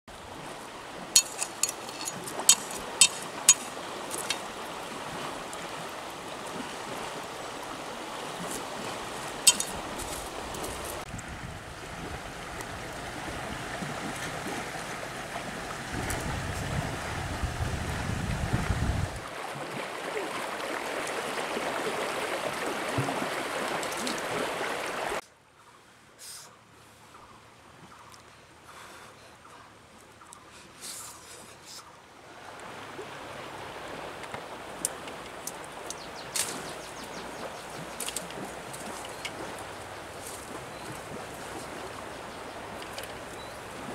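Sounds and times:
flowing river water: 0:00.1 - 0:43.9.

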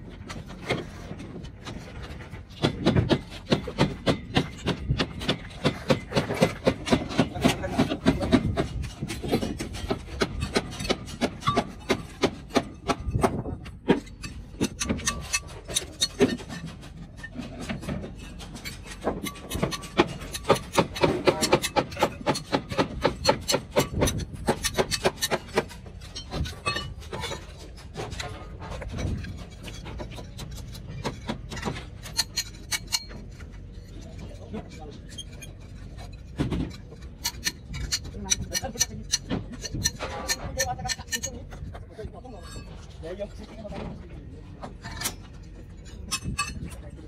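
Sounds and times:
tools knocking on timber and steel: 0:00.2 - 0:33.7, 0:36.2 - 0:41.8.

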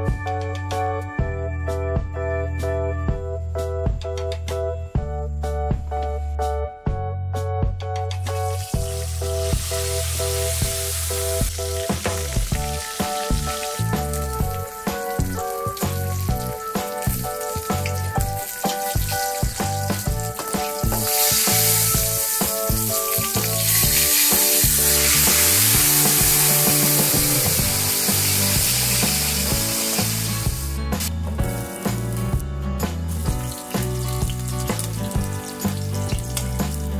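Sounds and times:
background music: 0:00.0 - 0:36.9
fish sizzling in oil: 0:08.2 - 0:30.8, 0:33.1 - 0:36.9.

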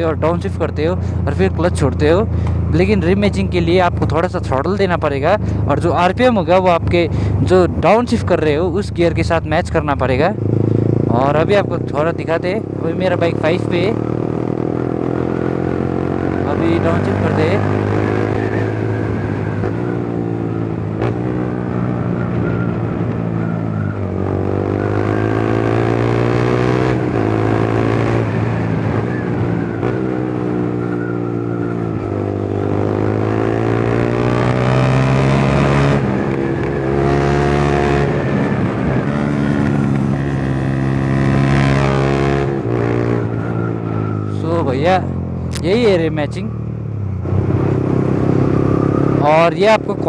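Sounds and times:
motorcycle engine revving on downshifts: 0:10.3 - 0:50.0.

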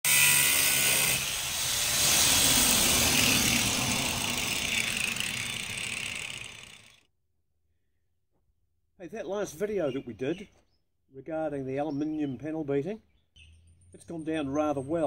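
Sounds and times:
angle grinder grinding steel: 0:00.0 - 0:07.0.

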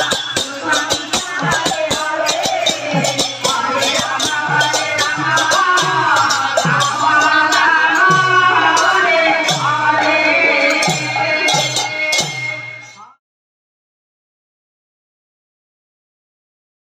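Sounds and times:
group singing a devotional chant: 0:00.0 - 0:13.2.

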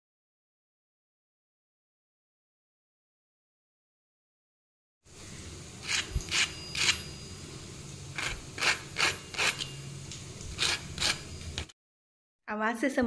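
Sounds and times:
fork scraping crispy crust: 0:08.2 - 0:09.8, 0:10.5 - 0:11.4.

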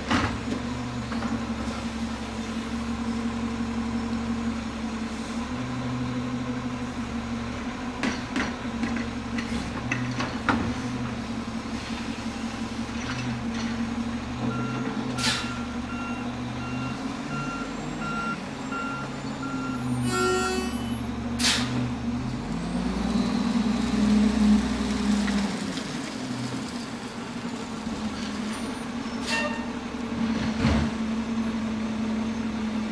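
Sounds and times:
air brake hisses: 0:15.2 - 0:15.6, 0:20.1 - 0:21.8.

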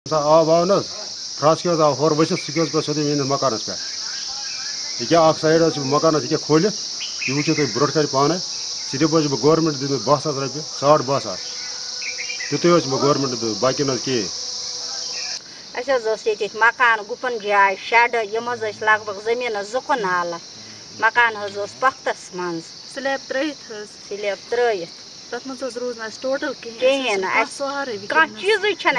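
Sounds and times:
man talking: 0:00.1 - 0:11.4, 0:12.5 - 0:15.1
crickets chirring: 0:00.1 - 0:28.9.

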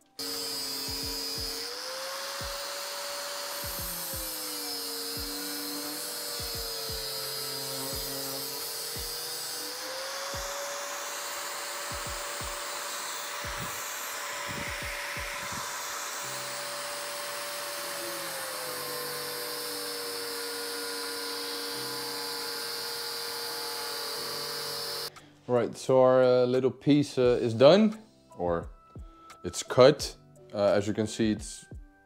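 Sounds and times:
angle grinder cutting metal: 0:00.0 - 0:25.1.

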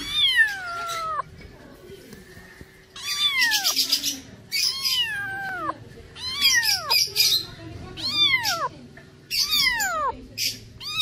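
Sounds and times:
cat meowing: 0:00.0 - 0:01.3, 0:03.0 - 0:03.8, 0:04.5 - 0:07.1, 0:07.9 - 0:08.7, 0:09.4 - 0:10.2, 0:10.8 - 0:11.0.

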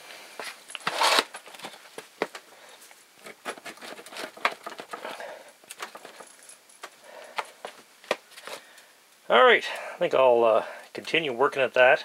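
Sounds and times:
tin lid tearing and crinkling: 0:00.7 - 0:01.7, 0:03.2 - 0:06.0.

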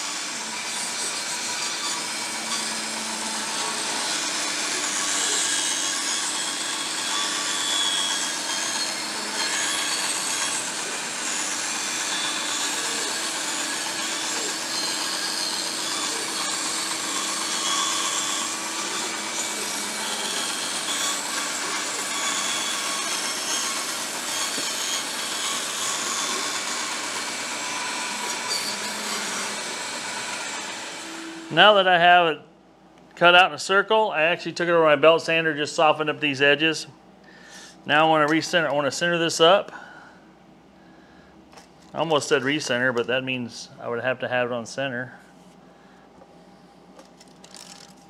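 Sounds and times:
saw motor hum: 0:00.0 - 0:31.8
band saw cutting plywood: 0:00.0 - 0:31.9.

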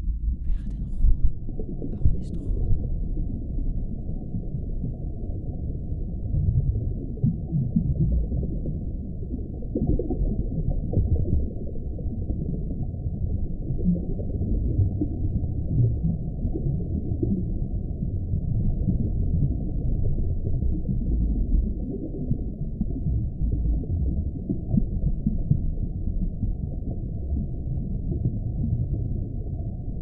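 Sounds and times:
gliding low electronic tones: 0:00.0 - 0:05.0
deep murky low rumble: 0:00.0 - 0:30.0.

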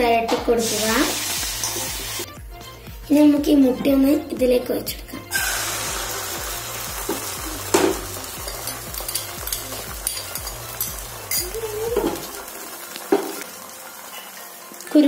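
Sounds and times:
egg sizzling in oil: 0:00.6 - 0:02.3, 0:05.3 - 0:15.0.

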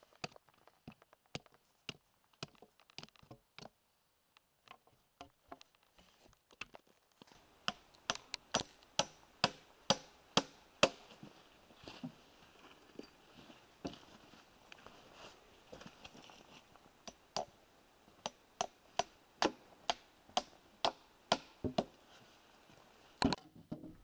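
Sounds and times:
hammer tapping wood chips: 0:00.0 - 0:03.8, 0:06.5 - 0:11.2, 0:17.0 - 0:17.6, 0:18.2 - 0:22.0.

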